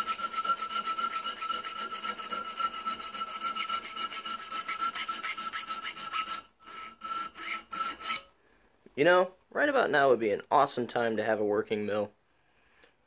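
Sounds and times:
hand file scraping metal: 0.0 - 8.3.

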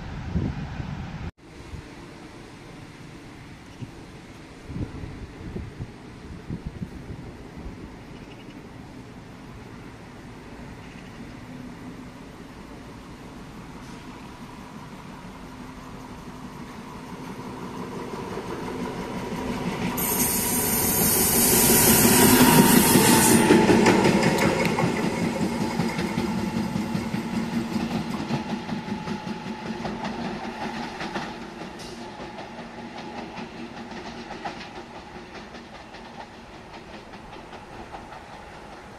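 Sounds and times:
loud hiss: 11.6 - 29.8
train wheels clacking over rail joints: 17.8 - 38.9.

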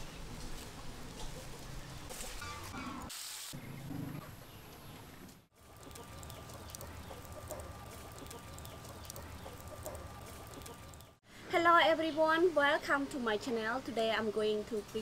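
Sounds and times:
charcoal fire crackling: 5.6 - 11.2
chickens clucking: 5.6 - 11.2.

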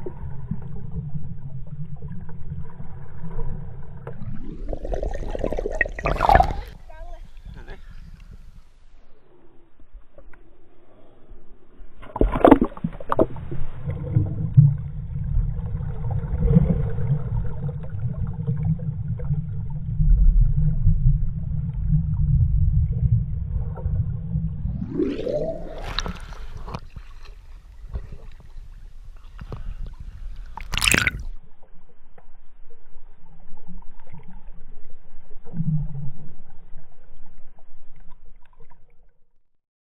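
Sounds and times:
underwater rumble and gurgle: 0.0 - 39.6
splash into water: 4.6 - 6.8, 25.0 - 27.4, 30.6 - 31.3
rising tone: 24.6 - 26.6.

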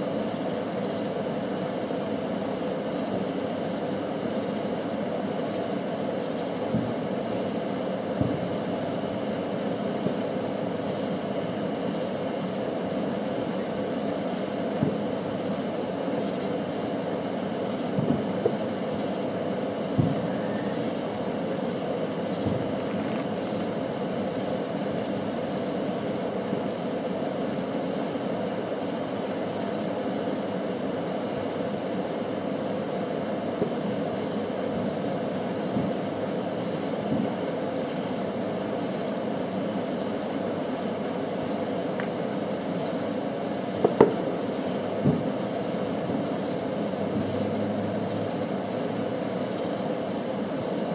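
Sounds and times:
distant fireworks pops and bangs: 6.6 - 8.8, 9.9 - 10.3, 14.6 - 15.2, 17.7 - 19.2, 19.8 - 21.7, 22.3 - 23.7, 35.4 - 36.0, 37.0 - 37.5, 43.8 - 44.4, 45.0 - 45.4.

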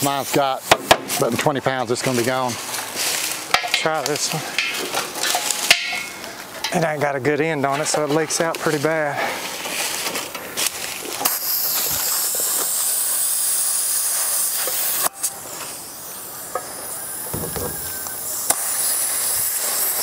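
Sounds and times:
compressed air hissing: 11.2 - 20.0.

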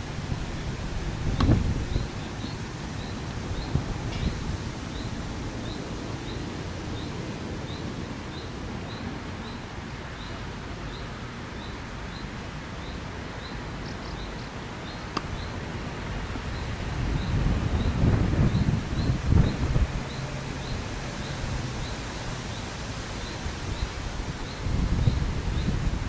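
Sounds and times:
wind on microphone: 0.0 - 9.9, 15.2 - 26.0.

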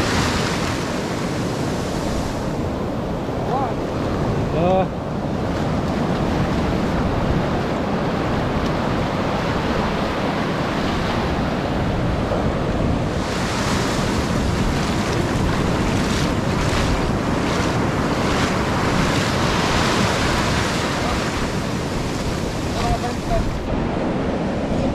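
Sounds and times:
ocean surf breaking: 0.0 - 24.9
wind buffeting microphone: 0.0 - 24.9.

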